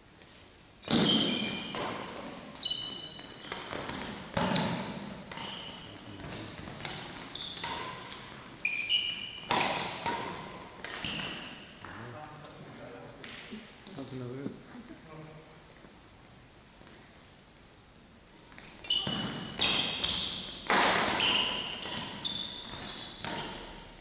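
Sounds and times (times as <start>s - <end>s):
shoes squeaking on floor: 0.8s - 12.1s, 18.5s - 24.0s
racket striking shuttlecock: 3.0s - 5.9s, 6.8s - 8.4s, 9.0s - 11.6s, 19.0s - 23.8s.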